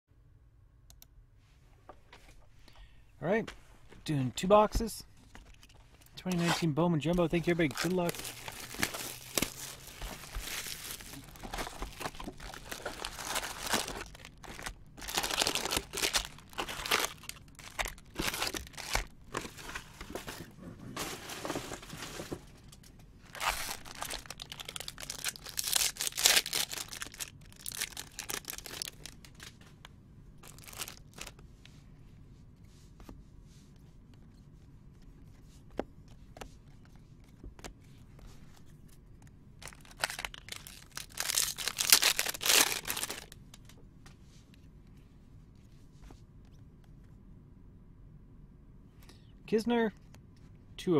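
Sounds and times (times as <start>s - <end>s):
plastic wrappers crinkling and tearing: 5.5s - 20.2s, 23.3s - 29.6s, 30.4s - 31.4s, 39.6s - 43.6s.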